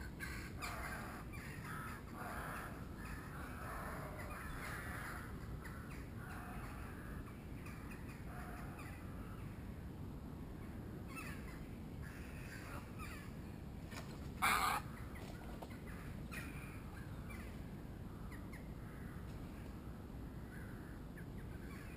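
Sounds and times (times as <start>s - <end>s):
harsh croaking bird calls: 0.0s - 9.6s, 10.6s - 13.5s, 14.4s - 21.9s.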